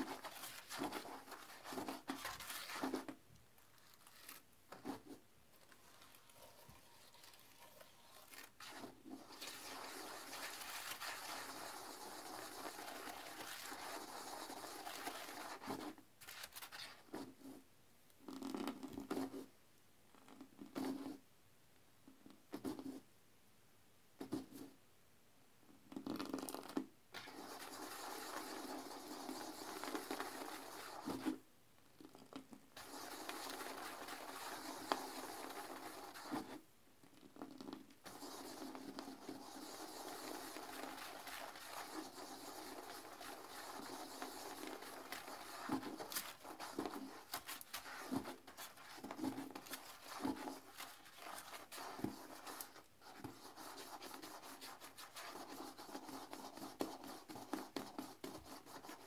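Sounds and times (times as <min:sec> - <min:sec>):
toilet brush scrubbing bowl: 0:00.0 - 0:03.1, 0:05.8 - 0:15.9, 0:27.2 - 0:31.4, 0:32.8 - 0:36.5, 0:38.0 - 0:59.0.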